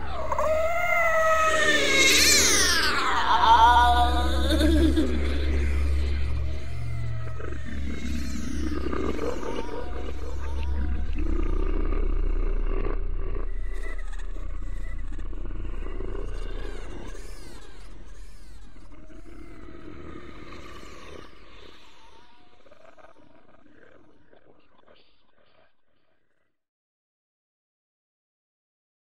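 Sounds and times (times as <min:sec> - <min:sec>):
animal-like calls: 0:00.0 - 0:25.7
steady low hum: 0:02.7 - 0:21.5.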